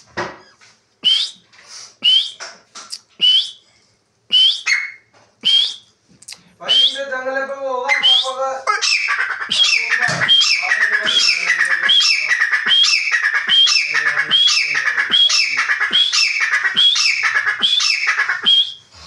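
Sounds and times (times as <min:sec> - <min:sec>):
francolin calling: 0:07.9 - 0:18.8.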